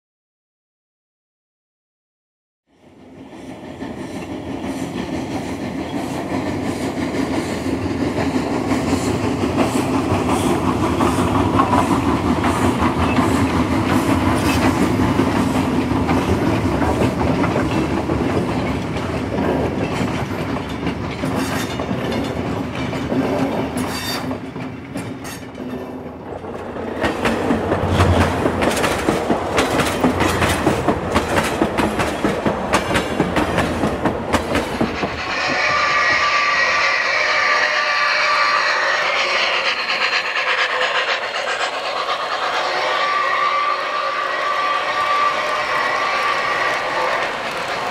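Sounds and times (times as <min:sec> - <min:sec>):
train wheels clicking on rails: 0:02.8 - 0:47.9.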